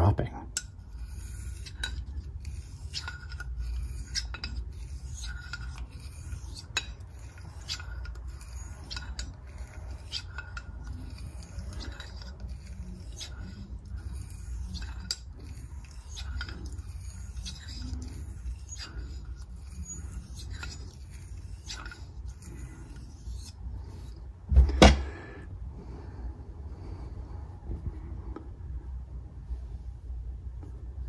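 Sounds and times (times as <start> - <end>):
razor scraping on whetstone: 0.6 - 24.2.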